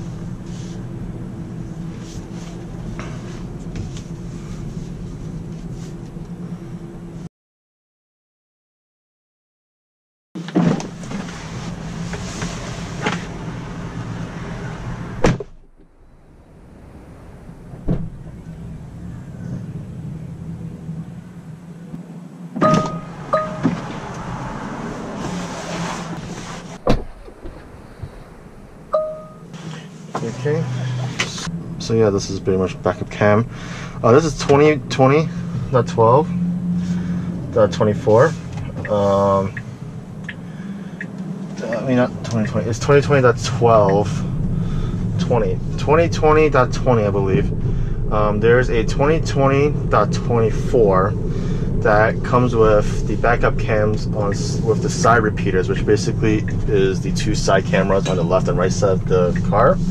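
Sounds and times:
constant hum: 0.0 - 7.3, 10.4 - 59.9
tyre and road noise in car cabin: 0.0 - 7.3, 10.4 - 59.9
rush of noise: 11.1 - 37.5, 43.2 - 59.9
two-note electronic chime: 22.6 - 23.8, 28.9 - 29.5.

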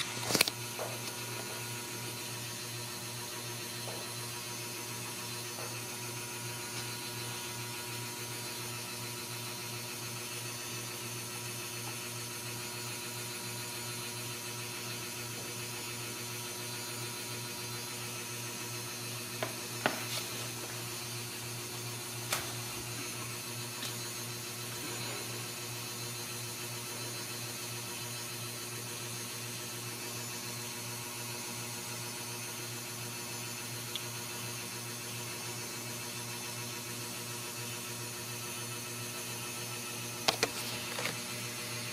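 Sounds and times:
machine hum with hiss: 0.0 - 41.9.

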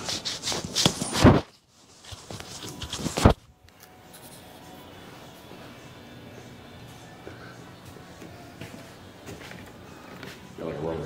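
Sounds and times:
handling rustling and clatter: 0.0 - 3.4.

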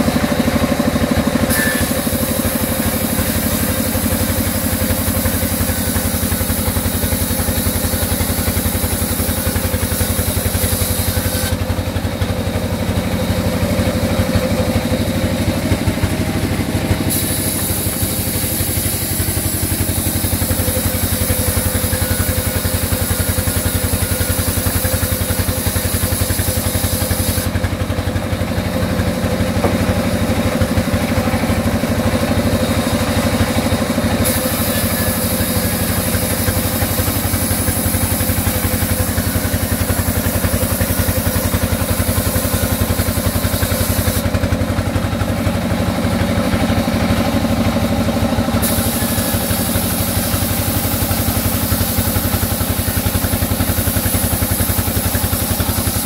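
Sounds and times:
band saw running: 0.0 - 56.0.

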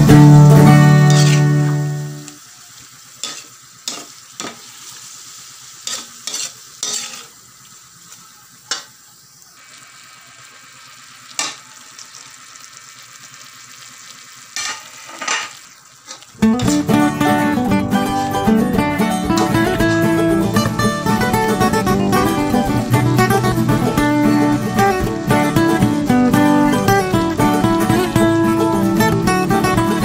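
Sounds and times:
meat sizzling in a frying pan: 0.0 - 30.0
spatula scraping a pan: 1.0 - 1.7, 3.2 - 4.8, 5.8 - 7.4, 14.6 - 17.1, 17.9 - 20.1.

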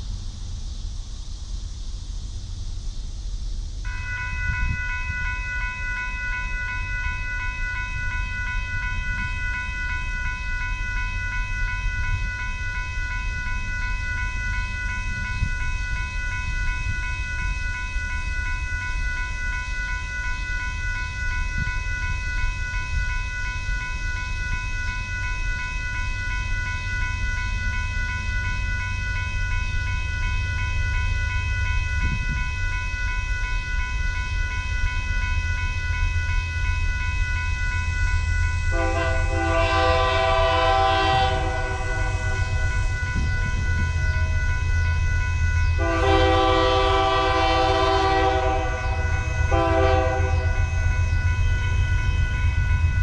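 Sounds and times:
railroad crossing bell ringing: 3.8 - 53.0.

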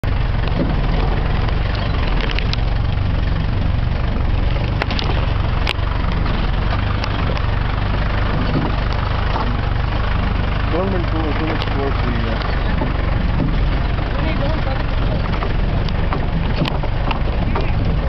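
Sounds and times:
engine running low rumble: 0.0 - 18.0.

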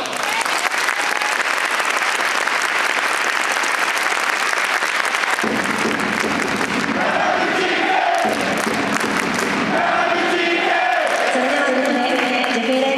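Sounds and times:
crowd clapping: 0.0 - 12.9
crowd voices: 7.0 - 12.9.

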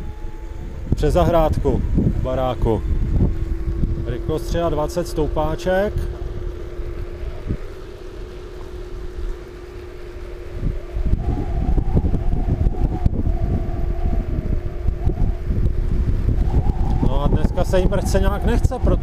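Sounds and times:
electric motor whine: 0.0 - 19.0
wind buffeting microphone: 0.0 - 19.0.

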